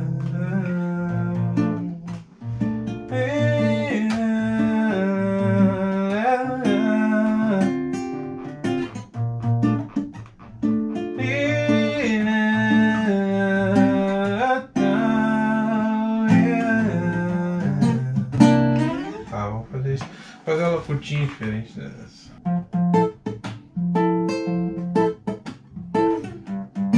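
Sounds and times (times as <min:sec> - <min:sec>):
man singing: 0:00.0 - 0:02.2, 0:03.1 - 0:07.9, 0:11.2 - 0:18.7
acoustic guitar strumming: 0:00.0 - 0:21.6, 0:22.3 - 0:26.9.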